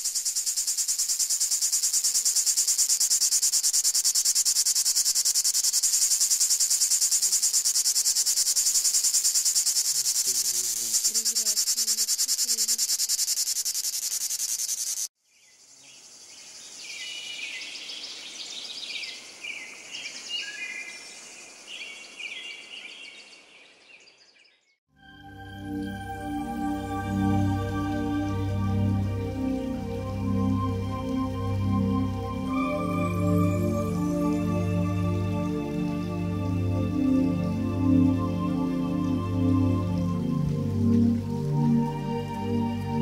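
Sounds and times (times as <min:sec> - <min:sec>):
cicada buzzing: 0:00.0 - 0:16.8.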